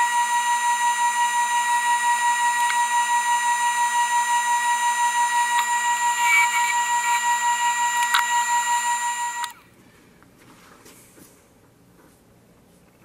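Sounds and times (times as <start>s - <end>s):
wood lathe whining: 0.0s - 9.6s.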